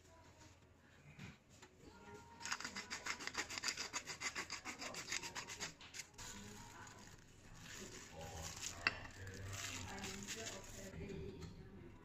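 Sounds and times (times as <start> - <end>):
pepper mill grinding: 2.4 - 10.9.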